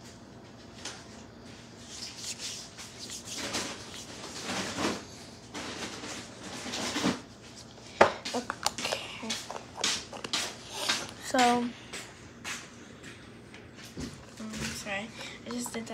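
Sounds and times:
hands rubbing lotion on skin: 1.8 - 5.0, 8.3 - 11.6.

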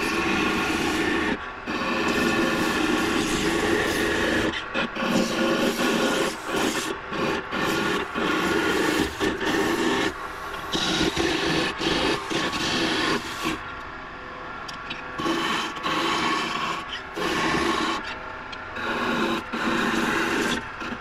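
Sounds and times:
chisel cutting wood on lathe: 15.2 - 18.2.

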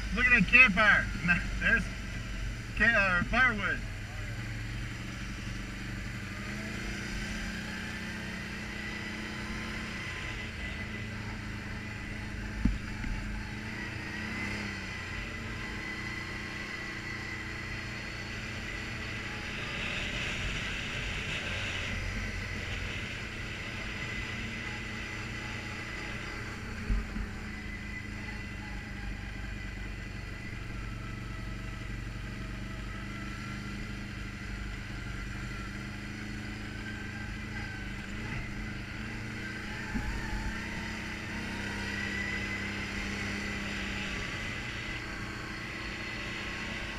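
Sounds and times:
high whine: 0.0 - 5.6
atv engine running: 0.0 - 46.9.

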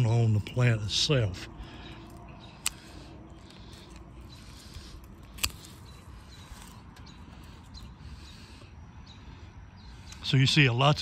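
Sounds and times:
hand pruners snipping: 2.0 - 7.6.

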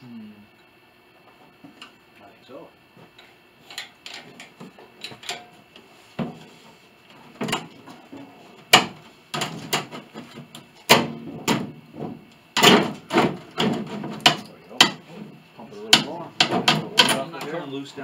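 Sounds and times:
wooden knocks and clunks: 8.7 - 15.0, 15.9 - 17.2.

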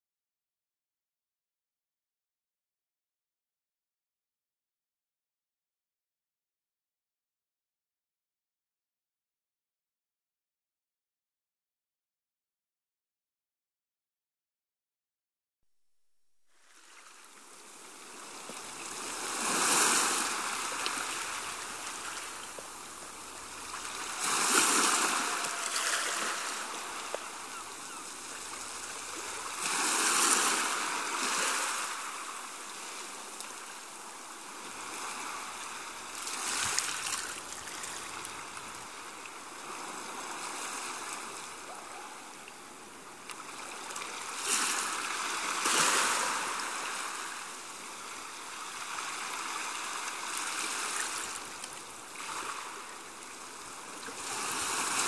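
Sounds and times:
rushing water-like noise: 16.6 - 55.0.

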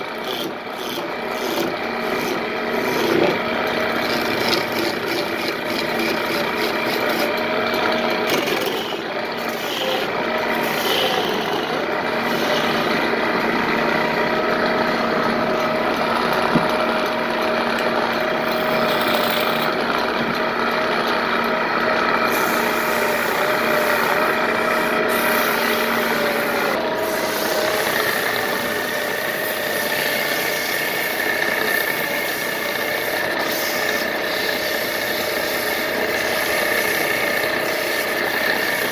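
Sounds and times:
wood lathe humming: 0.0 - 38.9
chisel scraping wood: 0.2 - 20.4.

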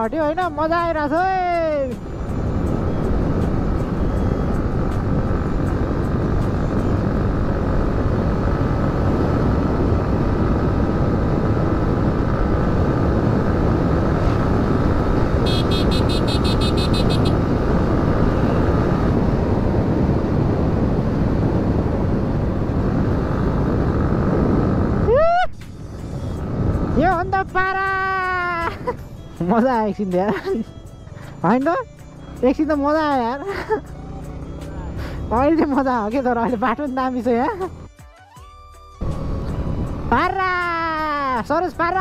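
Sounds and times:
wind rush: 0.0 - 29.0
motorcycle engine running: 1.0 - 25.1.

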